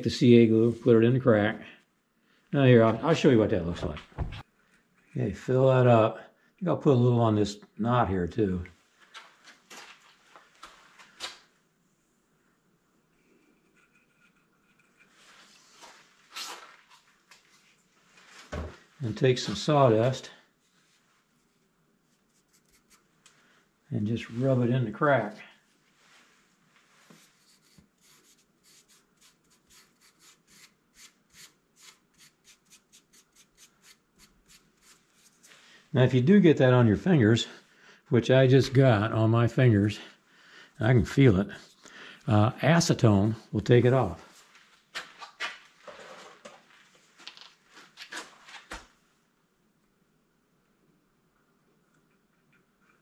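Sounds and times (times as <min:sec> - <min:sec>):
fingertips rubbing sawdust: 0:22.2 - 0:23.0, 0:27.1 - 0:35.6.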